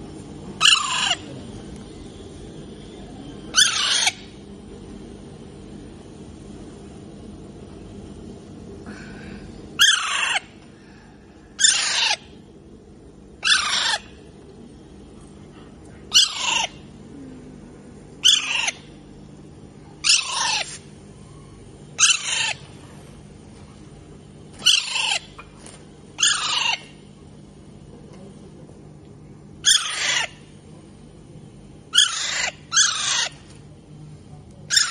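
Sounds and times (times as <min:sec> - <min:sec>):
parakeet screeching: 0:00.6 - 0:01.3, 0:03.5 - 0:04.4, 0:09.8 - 0:10.5, 0:11.6 - 0:12.3, 0:13.4 - 0:14.2, 0:16.1 - 0:16.8, 0:18.2 - 0:18.9, 0:20.0 - 0:20.8, 0:22.0 - 0:22.6, 0:24.6 - 0:25.4, 0:26.2 - 0:27.0, 0:29.6 - 0:30.4, 0:31.9 - 0:33.4, 0:34.7 - 0:34.9.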